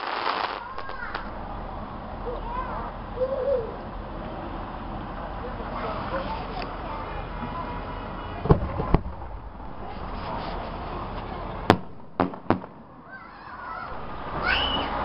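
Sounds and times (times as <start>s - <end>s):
fireworks bursting: 0.0s - 3.2s, 8.4s - 13.2s.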